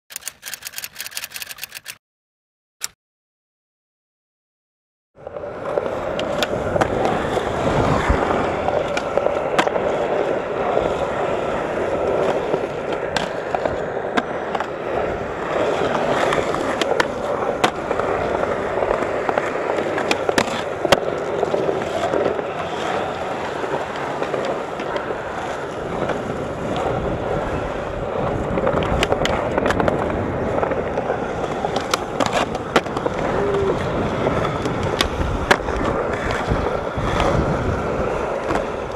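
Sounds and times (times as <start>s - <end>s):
skateboard clacks: 5.2s - 38.9s
skateboard wheels rolling on concrete: 5.2s - 38.9s.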